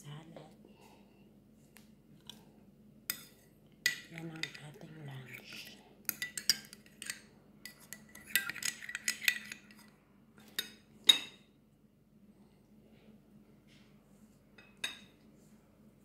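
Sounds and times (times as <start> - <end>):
metal spoon clinking on bowl: 3.1 - 9.9.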